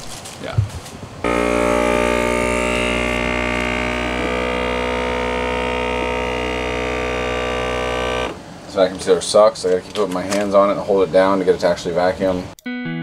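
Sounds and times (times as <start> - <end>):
vacuum sealer pump humming: 1.2 - 8.7.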